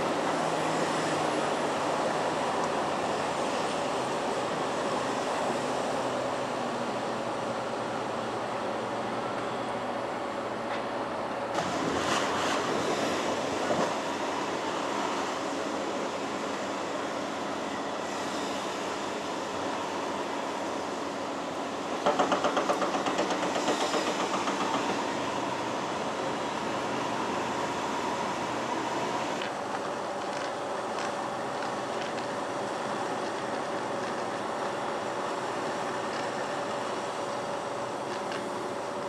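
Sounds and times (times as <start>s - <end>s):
water and mud churning: 11.6s - 16.1s.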